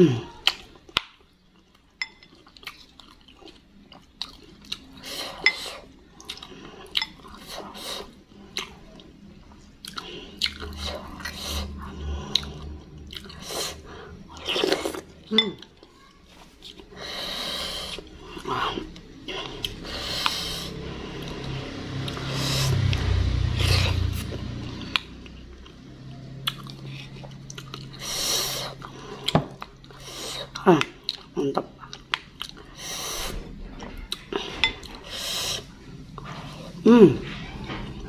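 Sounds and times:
chewing and wet mouth noises: 0:00.3 - 0:38.0.

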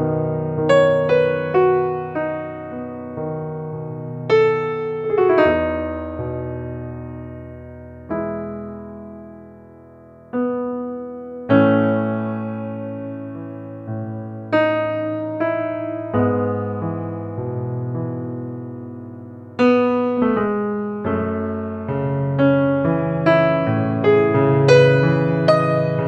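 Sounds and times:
slow piano notes and chords: 0:00.0 - 0:26.0.

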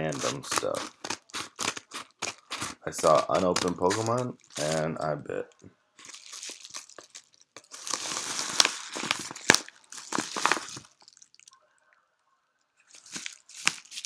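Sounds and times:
sharp crackles: 0:00.0 - 0:05.0, 0:06.0 - 0:11.6
bubble mailer crinkling: 0:00.0 - 0:05.1, 0:06.0 - 0:11.6, 0:12.9 - 0:14.0.

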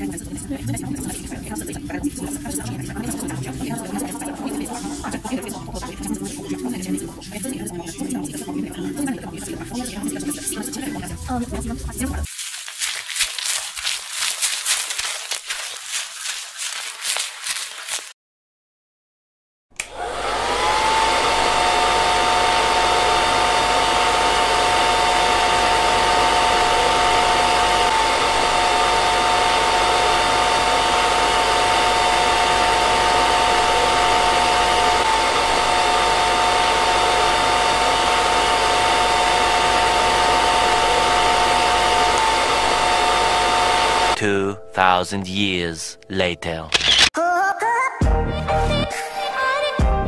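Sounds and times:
hair dryer switch click: 0:19.8 - 0:20.0
hair dryer blowing: 0:19.8 - 0:44.2.

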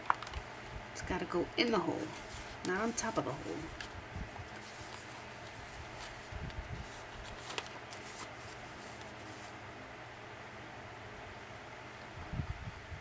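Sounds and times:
paper rustling: 0:02.0 - 0:09.6.

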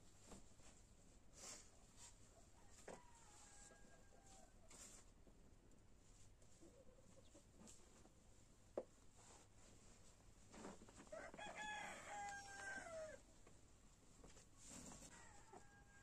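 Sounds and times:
rooster crowing: 0:02.6 - 0:04.4, 0:11.1 - 0:13.2, 0:15.1 - 0:16.0.

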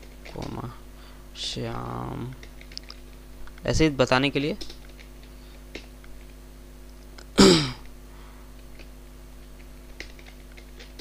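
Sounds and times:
low electrical hum: 0:00.0 - 0:11.0
computer keyboard keystrokes: 0:02.3 - 0:03.6, 0:04.6 - 0:06.3, 0:09.9 - 0:11.0.

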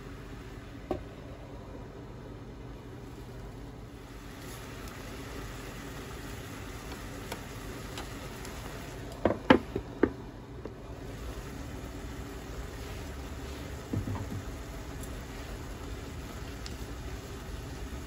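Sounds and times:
vegetables sizzling in frying pan: 0:04.1 - 0:09.0, 0:10.9 - 0:18.0.

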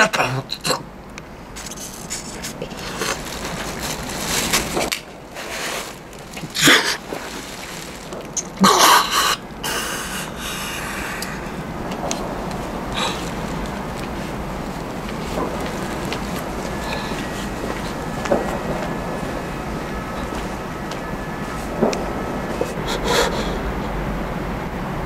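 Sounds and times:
background hiss: 0:00.0 - 0:25.0
man wheezing breathing: 0:08.6 - 0:11.6, 0:12.9 - 0:13.4, 0:16.8 - 0:17.4, 0:22.7 - 0:23.8.

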